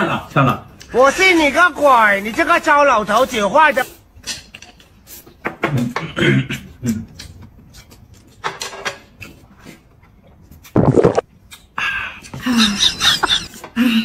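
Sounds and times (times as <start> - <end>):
drinks sucked through straws: 10.8 - 11.2.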